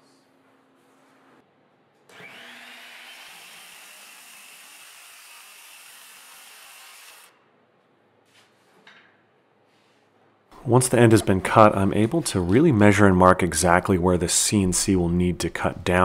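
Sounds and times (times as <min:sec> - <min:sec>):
circular saw cutting wood: 0:02.1 - 0:07.4.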